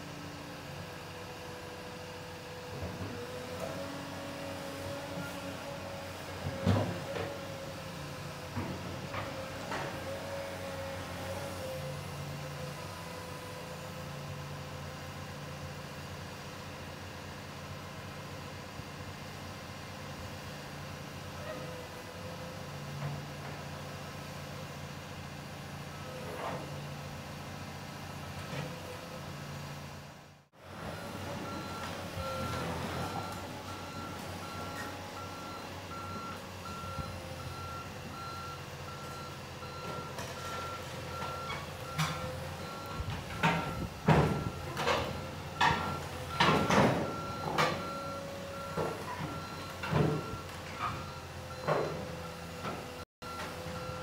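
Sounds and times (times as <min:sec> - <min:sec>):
excavator diesel engine running: 0:00.0 - 0:54.0
steel tracks clanking on ramps: 0:41.2 - 0:48.0.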